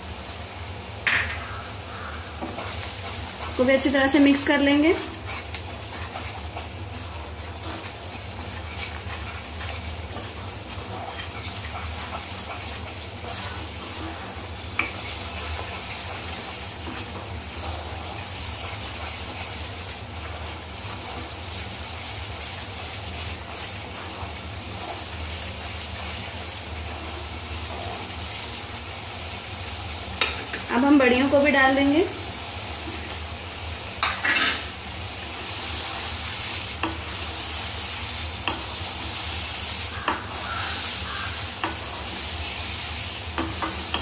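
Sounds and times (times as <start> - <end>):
paste sizzling in a pan: 0.0 - 44.0
wooden spatula stirring and scraping: 1.9 - 28.8.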